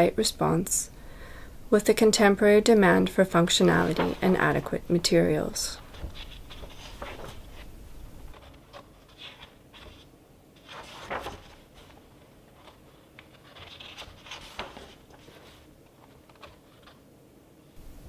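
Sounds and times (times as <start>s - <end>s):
book pages turning: 3.6s - 17.0s.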